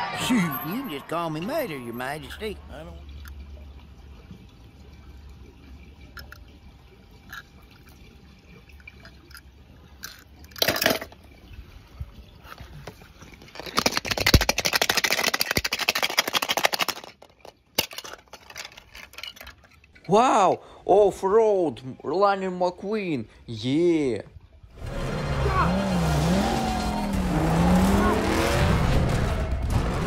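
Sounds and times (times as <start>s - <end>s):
water dripping: 0.3s - 18.7s.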